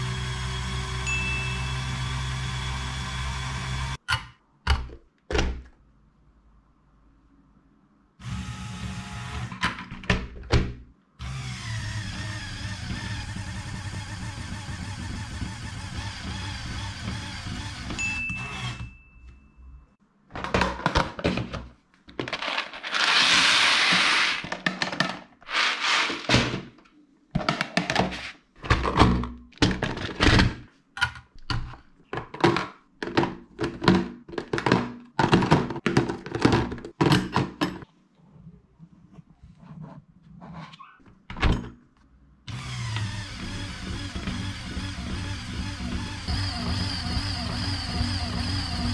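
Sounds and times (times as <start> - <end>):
electric motor and gears whirring: 0.0 - 4.0, 8.2 - 9.6, 11.2 - 18.9, 42.5 - 48.9
plastic boxes knocking and clattering: 20.3 - 22.8, 24.4 - 25.4, 27.3 - 30.6, 31.5 - 37.8
small parts rattling in boxes: 22.1 - 26.6.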